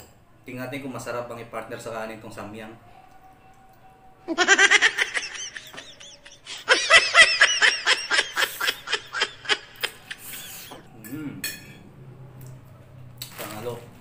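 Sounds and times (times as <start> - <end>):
high-pitched laughter: 4.3 - 10.8.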